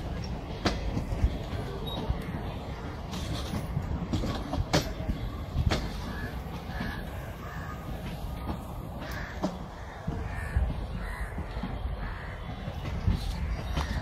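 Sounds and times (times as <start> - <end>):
train coaches rumbling past: 0.0 - 14.0
train wheel clicks: 0.0 - 14.0
crows cawing: 6.1 - 8.2, 9.0 - 12.6.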